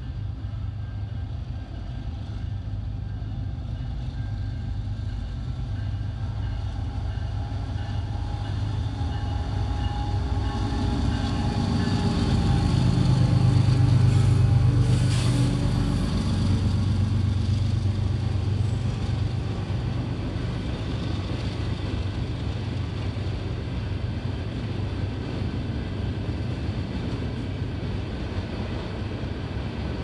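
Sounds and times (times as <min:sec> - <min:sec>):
freight train rolling past: 0:00.0 - 0:30.0.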